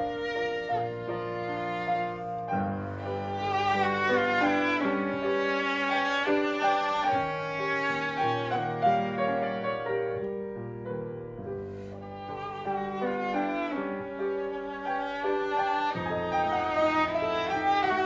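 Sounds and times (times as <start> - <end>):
bowed viola melody: 0.0 - 18.0
piano accompaniment: 0.0 - 18.0.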